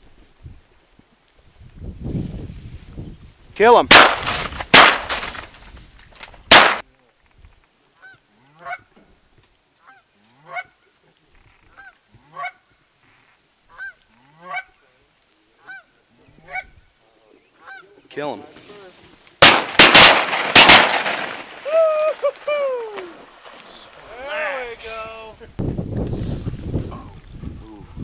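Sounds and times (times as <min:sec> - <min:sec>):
shotgun shots: 0:03.9 - 0:05.5, 0:06.5 - 0:06.8, 0:19.4 - 0:21.5
goose honks: 0:08.0 - 0:08.9, 0:09.8 - 0:10.8, 0:11.7 - 0:12.6, 0:13.7 - 0:14.8, 0:15.6 - 0:15.9, 0:16.5 - 0:16.7, 0:17.6 - 0:17.9.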